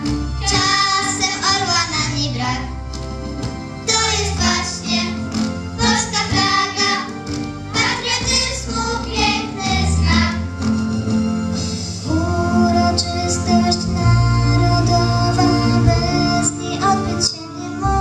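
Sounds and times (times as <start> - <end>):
instrumental accompaniment with bass: 0.0 - 18.0
children's voices: 7.8 - 10.4
girl singing into microphone: 12.5 - 18.0.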